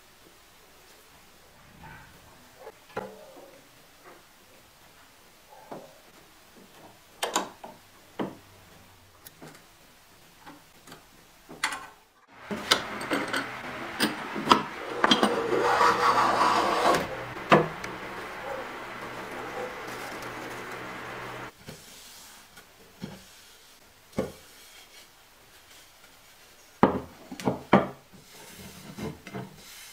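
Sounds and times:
low hum: 1.4 - 2.7, 12.4 - 21.5
wood rubbing and scraping: 12.3 - 21.5.

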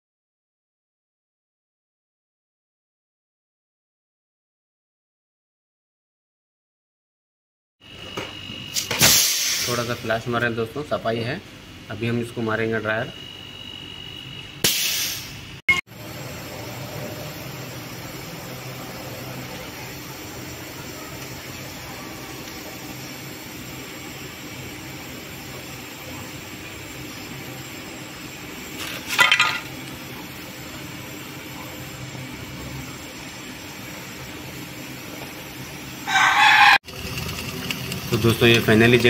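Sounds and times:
gas torch hissing: 8.0 - 10.7, 11.9 - 39.0
loud pitched call: 36.0 - 36.8.

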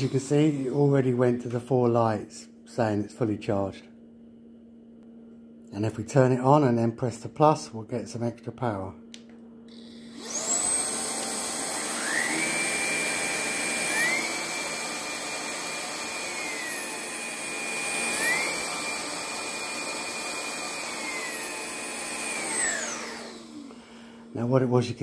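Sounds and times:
vacuum cleaner motor whine: 0.0 - 2.0, 9.7 - 25.0.

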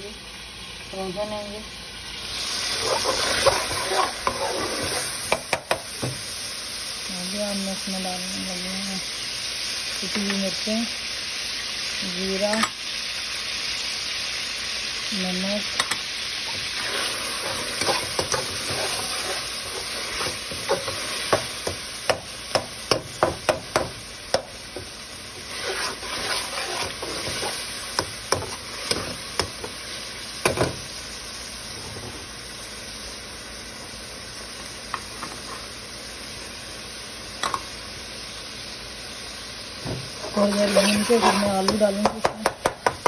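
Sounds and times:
vegetables sizzling in hot oil: 0.0 - 43.0
metal spatula scraping a pan: 2.6 - 5.7, 16.5 - 21.8, 24.8 - 29.7, 40.2 - 42.0.

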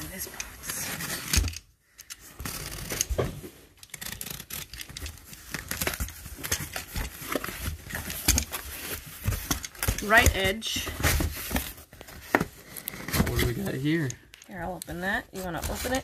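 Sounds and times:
knife slicing tape and cardboard: 2.4 - 8.8
cardboard scraping and rustling: 2.4 - 14.1, 15.3 - 16.0.

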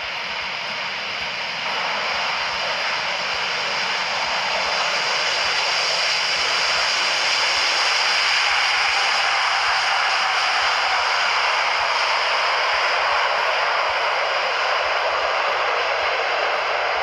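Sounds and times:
jet airliner engines rushing: 0.0 - 17.0.

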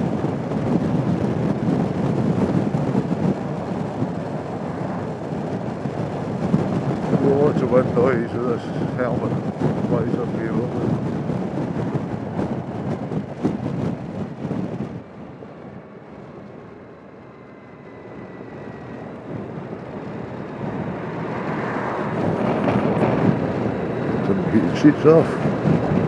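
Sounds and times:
wind buffeting microphone: 0.0 - 26.0
faint whine: 15.0 - 21.3.

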